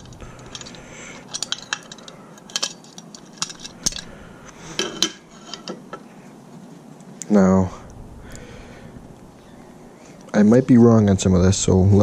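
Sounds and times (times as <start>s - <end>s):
small metal parts clinking: 0.0s - 5.9s.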